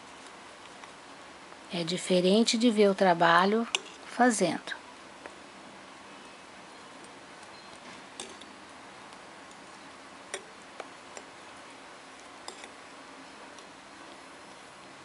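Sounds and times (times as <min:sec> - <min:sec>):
faint steady hiss: 0:00.0 - 0:15.0.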